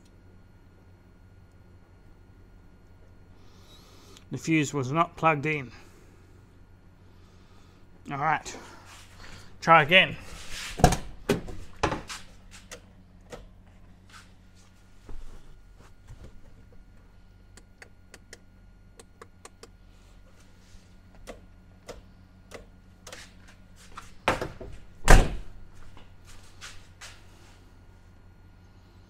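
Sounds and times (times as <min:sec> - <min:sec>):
heavy thunks: 0:24.3 - 0:25.6.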